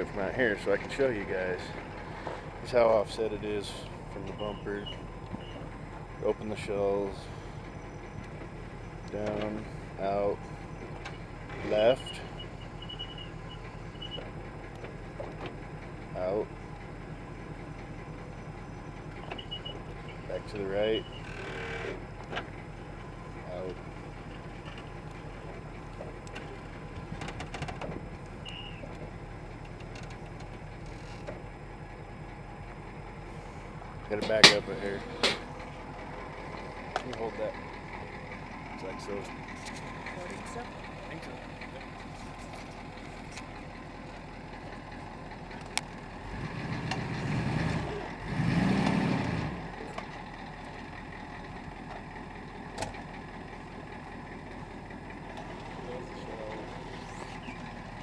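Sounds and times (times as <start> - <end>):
truck engine running: 0.0 - 58.0.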